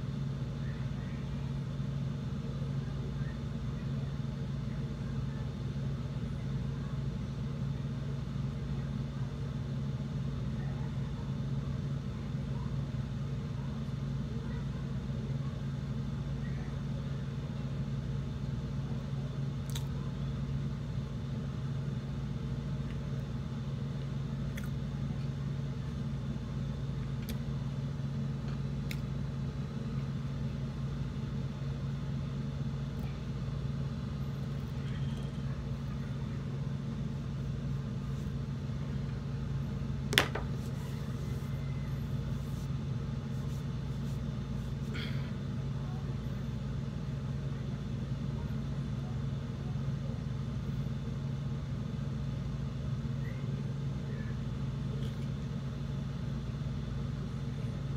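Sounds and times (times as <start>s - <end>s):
low mechanical hum: 0.0s - 57.9s.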